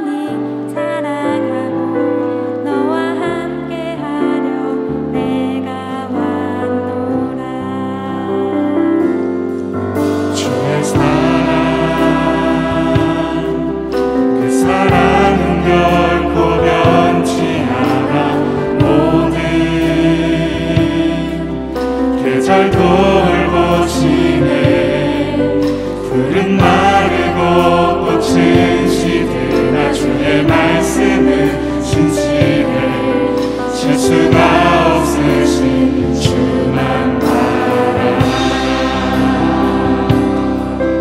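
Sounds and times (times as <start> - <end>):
keyboard: 0.0 - 41.0
group singing: 10.3 - 41.0
drum kit beat: 14.6 - 21.4, 34.1 - 41.0.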